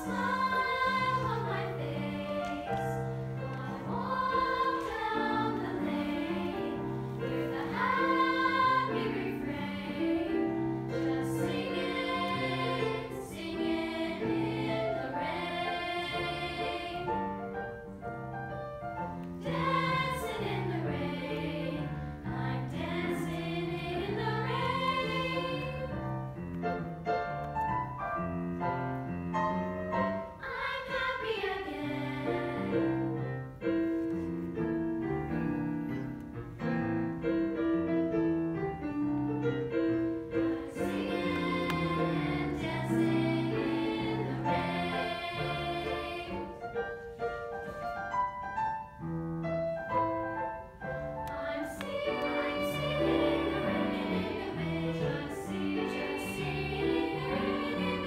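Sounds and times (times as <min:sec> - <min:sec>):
girls' choir singing: 0:00.0 - 0:17.9, 0:19.1 - 0:26.4, 0:30.2 - 0:33.4, 0:39.7 - 0:47.8, 0:50.6 - 0:58.0
piano accompaniment: 0:00.0 - 0:58.0.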